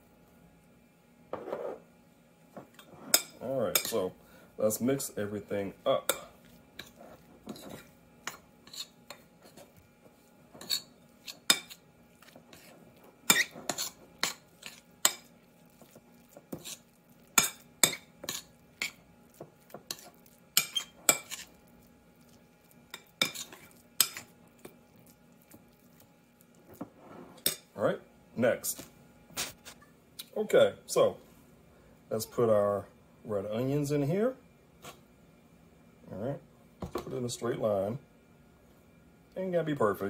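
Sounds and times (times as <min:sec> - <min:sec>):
fork clinking in a bowl: 0:19.9 - 0:21.5.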